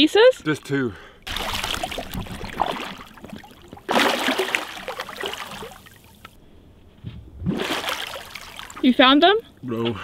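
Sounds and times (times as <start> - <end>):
water splashing and sloshing: 0.4 - 6.4, 7.4 - 9.3.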